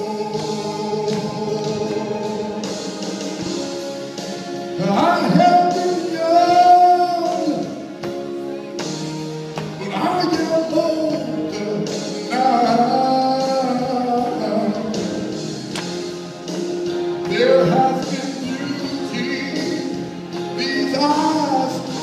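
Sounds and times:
man singing gospel song: 0.0 - 3.4, 4.7 - 8.0, 9.8 - 15.5, 17.2 - 22.0
instrumental accompaniment: 0.0 - 22.0.

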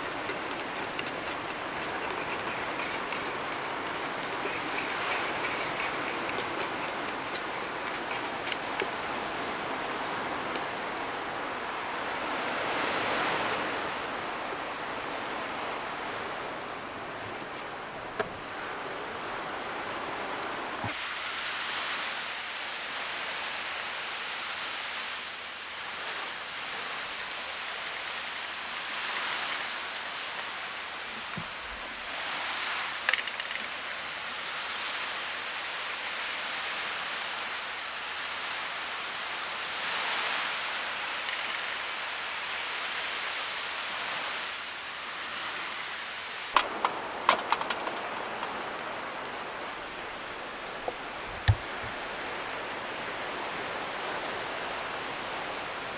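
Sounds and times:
fish sizzling on a grill: 34.4 - 40.1, 40.8 - 45.4, 49.8 - 51.2.

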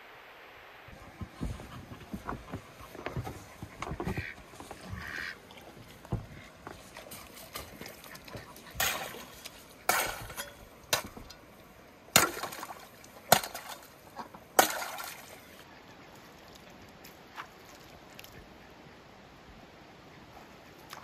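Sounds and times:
axe chopping ice: 8.8 - 9.3, 9.9 - 11.2, 12.1 - 13.9, 14.6 - 15.2
water splash: 8.8 - 11.1, 12.1 - 13.9, 14.6 - 15.4.

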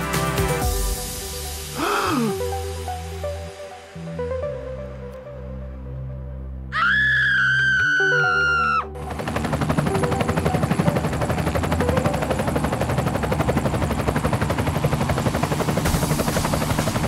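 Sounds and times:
high held scream: 6.7 - 8.9.

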